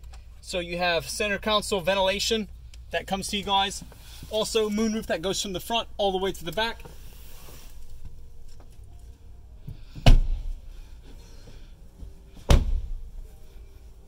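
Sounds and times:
car door heavy thuds: 9.9 - 10.5, 12.4 - 13.0.

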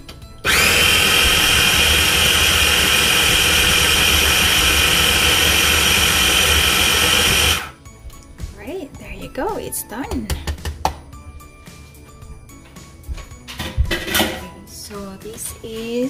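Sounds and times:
food processor motor whine: 0.4 - 7.8.

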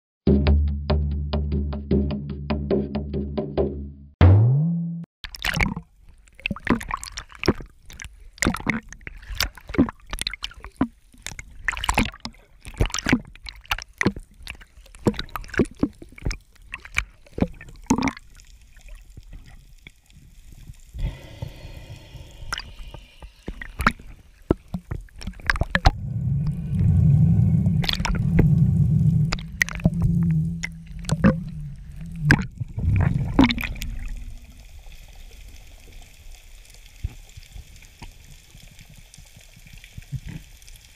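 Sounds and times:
sharp underwater clicks and knocks: 5.3 - 18.3, 22.5 - 27.0, 27.7 - 34.4
underwater gurgling: 5.3 - 40.9
low loud rumble: 21.0 - 23.8, 25.8 - 35.1.

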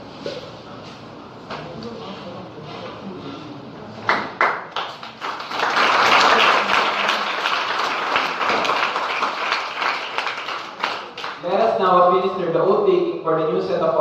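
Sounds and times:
audience applauding: 4.1 - 11.4.

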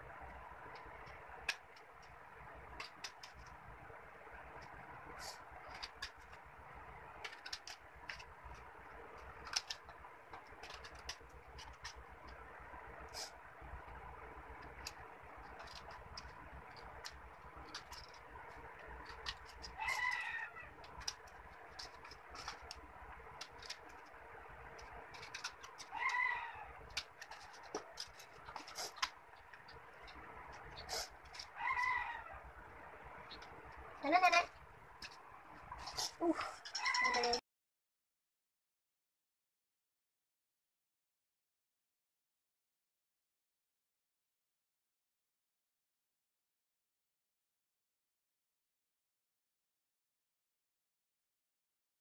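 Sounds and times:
scissors snipping paper: 7.2 - 12.0, 14.6 - 20.2, 20.8 - 24.1, 24.7 - 26.2, 26.8 - 29.2.

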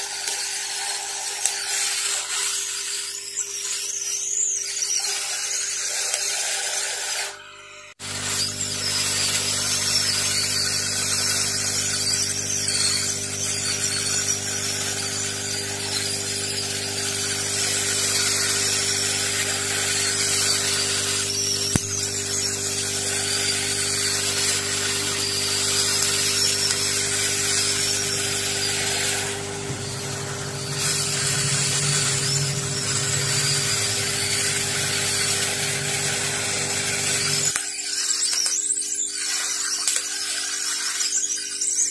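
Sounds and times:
heat gun humming and blowing: 0.0 - 41.3
sharp click: 21.4 - 22.2.

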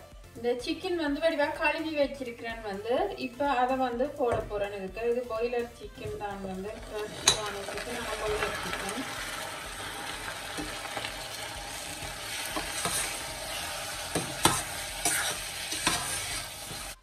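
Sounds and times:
chicken sizzling in oil: 6.8 - 17.0
metal ladle clinking against pot: 7.2 - 7.6.

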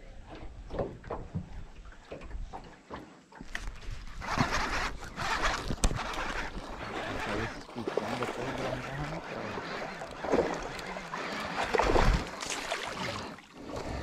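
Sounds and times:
water splashing: 0.1 - 14.0.

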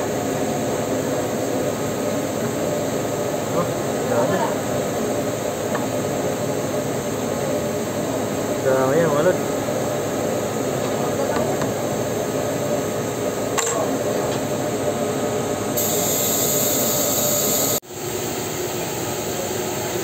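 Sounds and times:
machinery drone: 15.8 - 17.8
sharp high hiss: 15.8 - 17.8.

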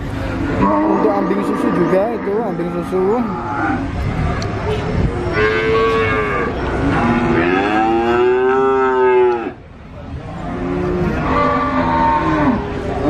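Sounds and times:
cattle mooing: 0.6 - 3.9, 5.3 - 9.6, 10.4 - 12.8.

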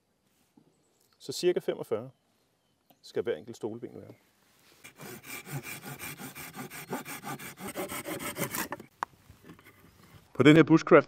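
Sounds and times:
pull saw rasping through wood: 4.8 - 10.0.

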